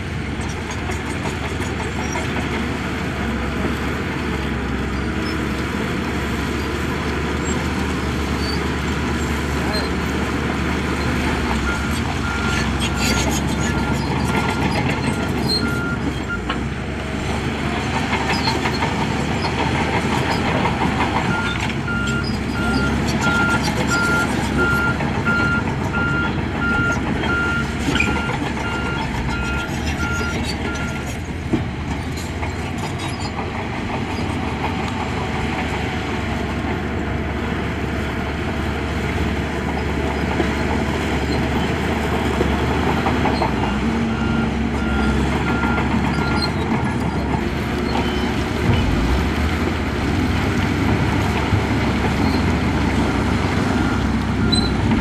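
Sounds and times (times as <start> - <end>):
diesel machinery engines running: 0.0 - 55.0.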